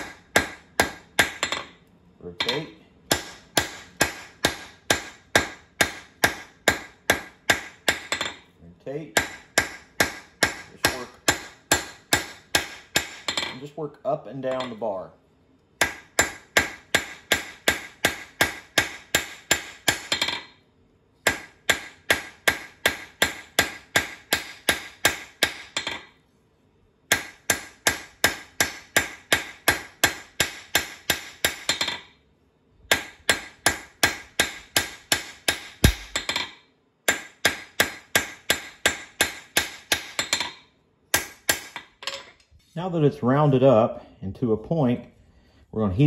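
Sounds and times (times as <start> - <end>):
hammer striking hot metal on anvil: 0.0 - 1.7, 2.4 - 8.4, 9.2 - 13.6, 15.8 - 20.5, 21.3 - 26.1, 27.1 - 32.0, 32.9 - 41.8.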